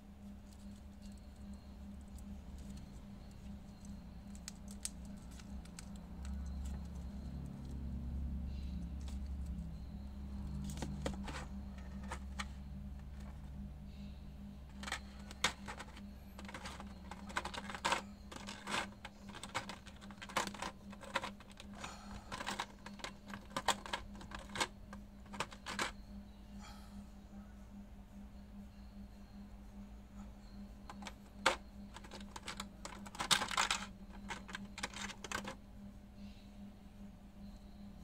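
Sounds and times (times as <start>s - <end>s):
plastic tray crinkling and clicking: 10.6s - 13.5s, 14.7s - 26.0s, 30.9s - 35.6s.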